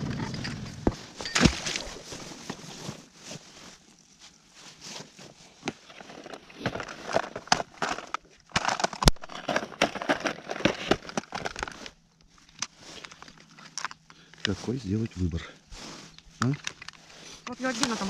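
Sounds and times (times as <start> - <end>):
plastic boxes clicking and rattling: 6.0 - 11.9.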